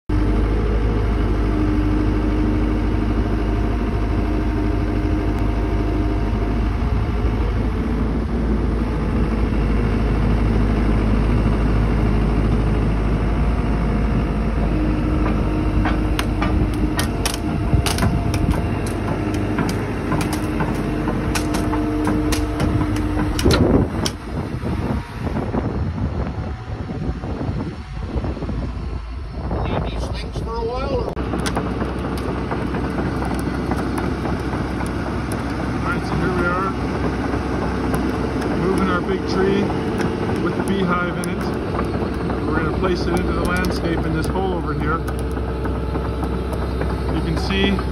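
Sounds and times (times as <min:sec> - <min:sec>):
loader engine droning: 0:00.1 - 0:47.9
sharp clicks and knocks: 0:15.2 - 0:24.3, 0:31.2 - 0:47.9.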